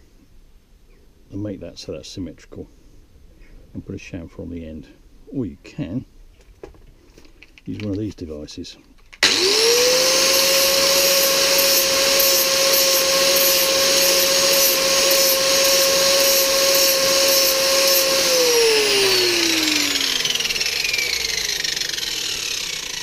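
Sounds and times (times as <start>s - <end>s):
angle grinder whining: 9.2s - 23.0s.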